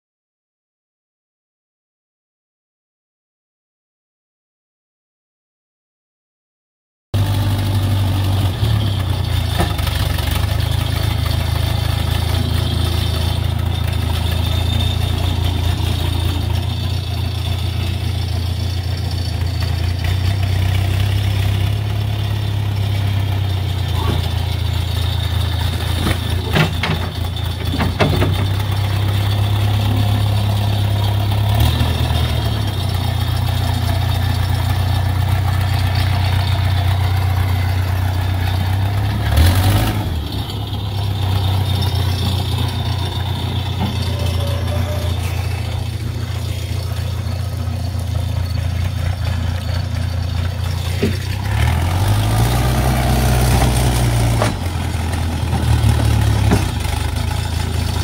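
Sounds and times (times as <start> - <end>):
backhoe engine humming: 7.2 - 58.0
clunks: 7.2 - 58.0.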